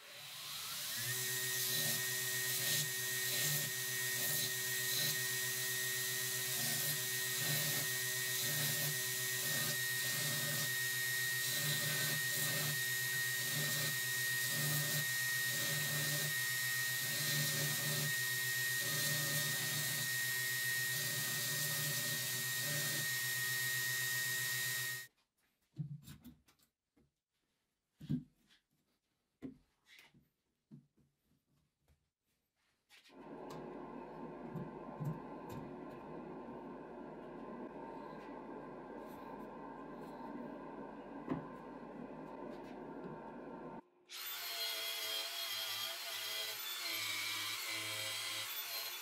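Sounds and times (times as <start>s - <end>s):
belt grinder motor whine: 0.7s - 25.1s.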